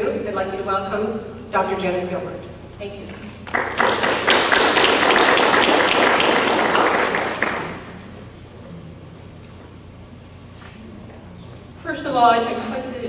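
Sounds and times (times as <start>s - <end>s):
audience applauding: 3.4s - 8.2s.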